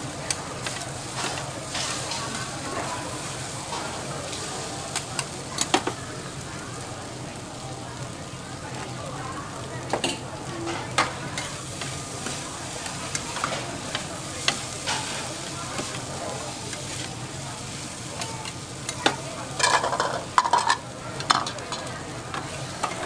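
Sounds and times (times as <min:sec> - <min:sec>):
noodles sizzling on a griddle: 0:00.0 - 0:23.0
metal spatulas scraping and clacking: 0:00.6 - 0:02.3, 0:13.1 - 0:15.9, 0:18.2 - 0:23.0.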